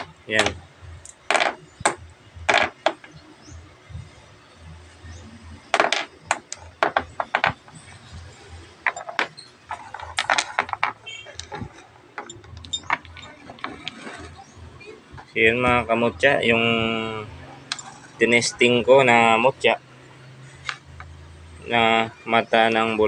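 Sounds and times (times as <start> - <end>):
small stones clacking on metal: 0.0 - 3.1, 5.7 - 7.8, 8.8 - 14.1.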